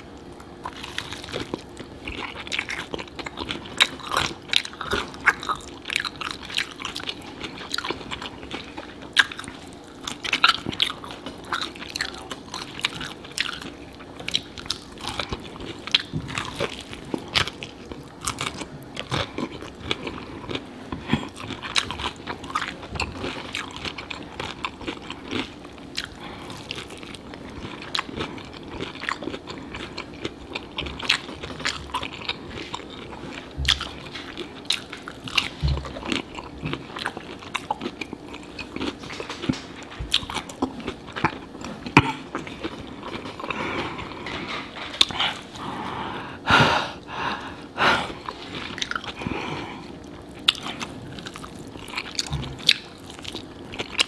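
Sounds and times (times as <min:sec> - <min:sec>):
fried chicken crunching: 0:00.2 - 0:45.5, 0:49.9 - 0:54.0
wet chewing: 0:00.2 - 0:45.7, 0:48.2 - 0:54.0.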